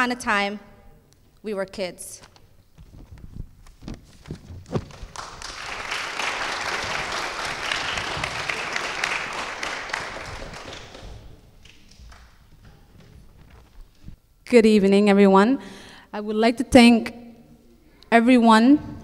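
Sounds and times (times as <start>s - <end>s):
audience applauding: 4.8s - 12.5s.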